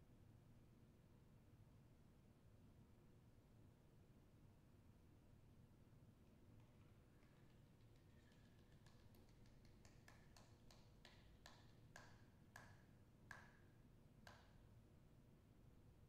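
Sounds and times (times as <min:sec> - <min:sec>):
body percussion clicks: 0:06.6 - 0:13.6.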